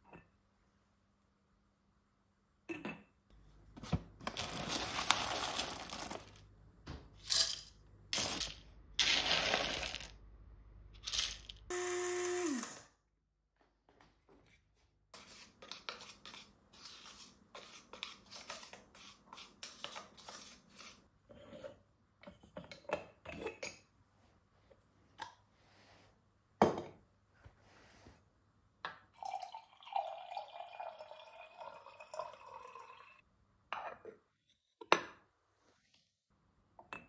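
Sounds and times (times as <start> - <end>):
water pouring into metal pot: 29.2 - 33.2.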